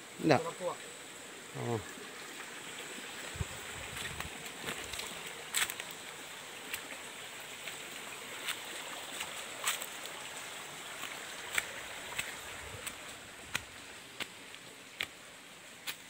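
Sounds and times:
forest stream rushing: 0.0 - 16.0
high insect drone: 0.0 - 16.0
footsteps on dry leaves: 3.4 - 7.0, 7.6 - 15.2.

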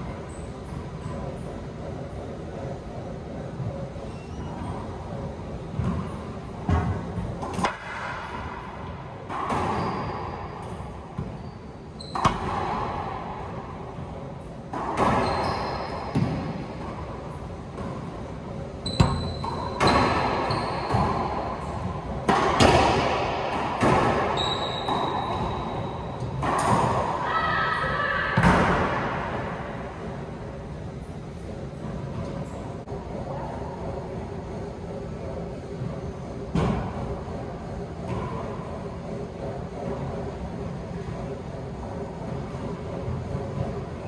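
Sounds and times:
sneaker squeaks on hardwood: 4.0 - 4.9, 9.5 - 12.5, 15.0 - 16.6, 18.8 - 21.3, 24.2 - 26.3
ball slapping court walls: 5.7 - 8.6, 12.1 - 13.1, 14.7 - 17.0, 18.9 - 27.1
racquetball hits: 5.7 - 11.4, 12.0 - 27.3, 28.3 - 29.8.

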